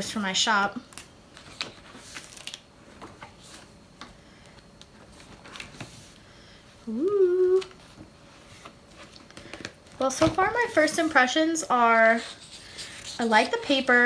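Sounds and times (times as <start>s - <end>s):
paper pages turning: 0.9s - 3.7s
woman humming: 6.8s - 7.8s.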